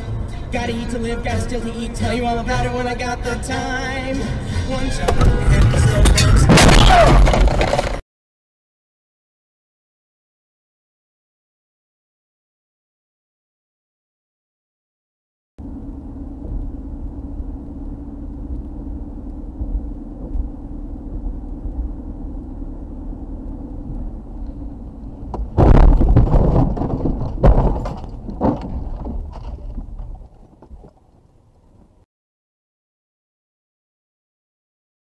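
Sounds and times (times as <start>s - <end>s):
road and engine drone inside car: 0.0s - 7.0s, 15.6s - 32.1s
car crashing into guardrail: 5.0s - 8.0s, 25.4s - 29.5s.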